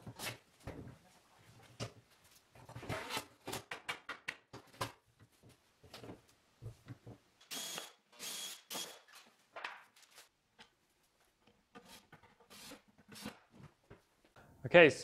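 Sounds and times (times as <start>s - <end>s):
cordless drill whining: 7.5s - 9.0s.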